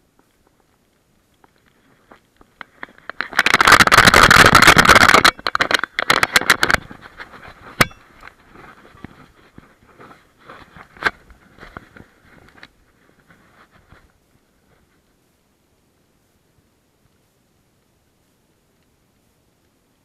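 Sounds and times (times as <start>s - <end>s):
faint crackling: 0.0s - 20.0s
rushing scraping on microphone: 1.6s - 15.1s.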